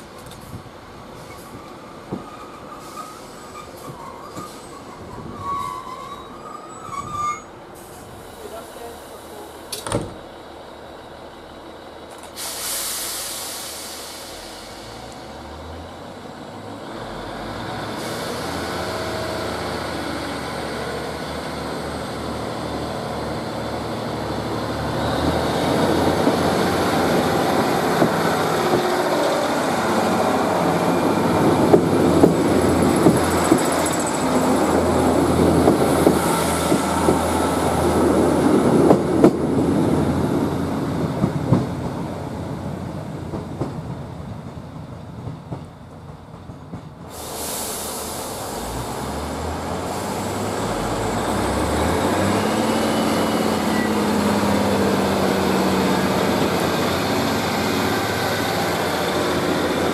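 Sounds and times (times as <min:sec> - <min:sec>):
diesel train engines: 0:00.0 - 0:59.9
train wheel noise: 0:00.0 - 0:59.9
clicks from rail joints: 0:12.1 - 0:12.4
air hiss: 0:12.3 - 0:15.3, 0:47.1 - 0:51.4.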